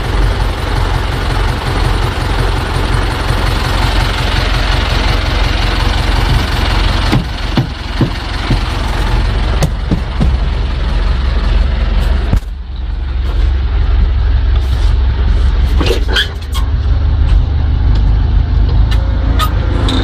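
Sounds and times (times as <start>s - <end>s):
tractor diesel engine running: 0.0s - 20.0s
sharp clicks and knocks: 6.2s - 8.8s, 9.6s - 10.6s.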